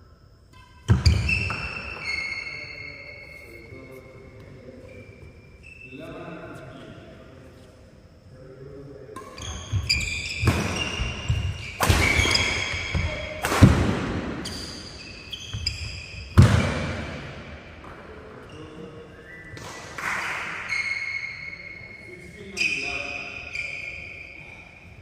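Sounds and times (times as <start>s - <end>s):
racket hitting shuttlecock: 9.2s - 14.5s
shoes squeaking on wooden floor: 9.4s - 13.3s, 14.4s - 16.4s.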